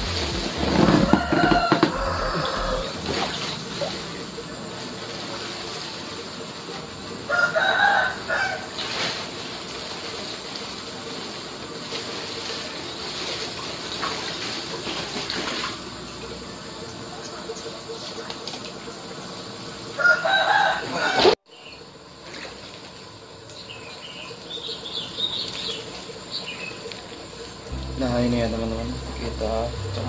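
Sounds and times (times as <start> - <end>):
pond water splashing: 0.0 - 7.1, 8.8 - 16.4
rooster crowing: 0.6 - 3.0, 7.3 - 8.7, 20.0 - 21.4.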